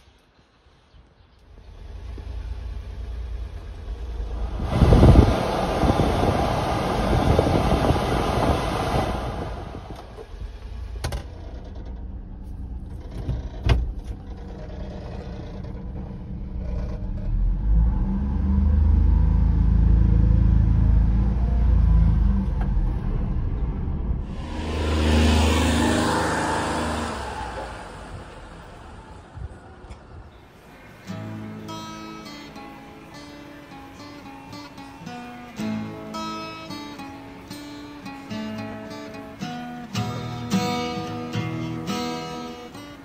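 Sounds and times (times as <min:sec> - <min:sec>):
steady low hum: 0:02.4 - 0:11.0, 0:23.5 - 0:31.0
loud rushing noise: 0:04.1 - 0:10.2, 0:24.2 - 0:31.4.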